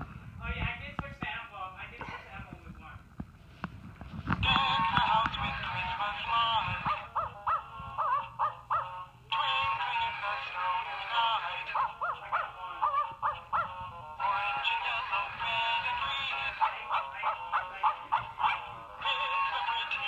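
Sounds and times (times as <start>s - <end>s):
toy singing over backing music: 4.4s - 20.0s
dog-bark notes playing a tune: 16.6s - 18.8s.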